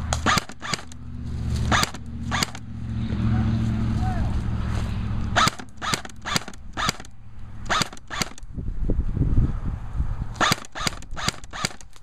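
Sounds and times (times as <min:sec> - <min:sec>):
airsoft rifle shots: 0:00.1 - 0:01.0, 0:01.6 - 0:02.7, 0:05.4 - 0:08.5, 0:10.4 - 0:12.0.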